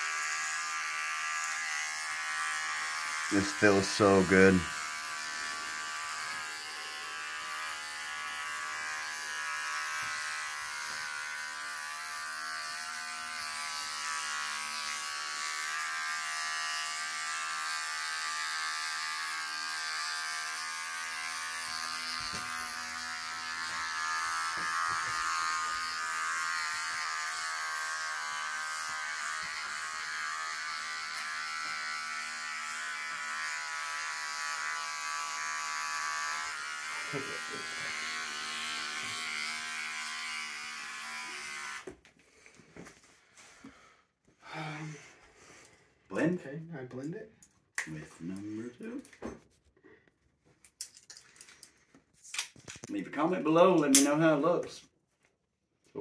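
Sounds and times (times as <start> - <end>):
electric hair clippers buzzing: 0.0 - 42.0.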